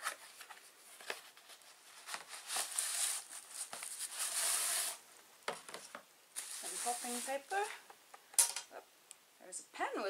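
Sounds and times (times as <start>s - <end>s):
bubble wrap crinkling: 0.0s - 5.0s, 6.3s - 7.8s
cardboard and plastic packaging rustling: 0.0s - 7.8s.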